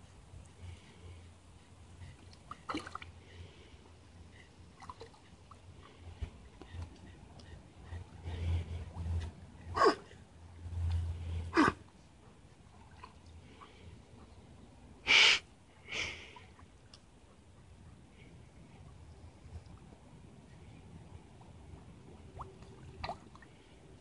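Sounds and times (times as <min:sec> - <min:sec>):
dog snorting water: 0:02.5 - 0:03.2.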